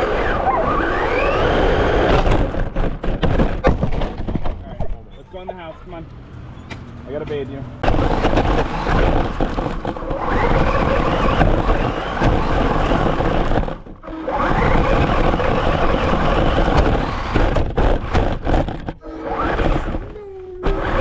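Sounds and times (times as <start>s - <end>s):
electric motor whining: 0.0s - 2.6s, 7.8s - 21.0s
tyres churning over grass: 7.8s - 21.0s.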